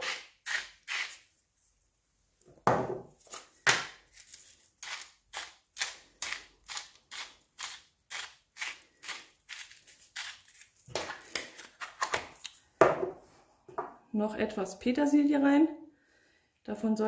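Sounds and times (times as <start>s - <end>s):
salt and pepper mills grinding: 4.8s - 11.2s.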